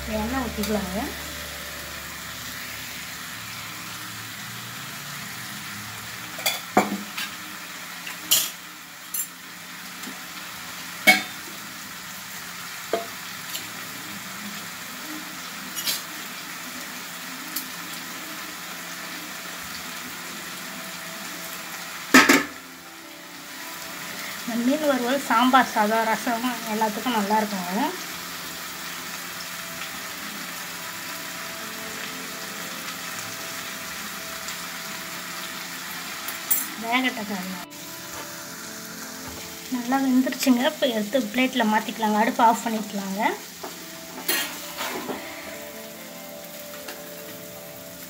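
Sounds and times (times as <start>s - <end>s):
fish sizzling in oil: 0.0s - 48.0s.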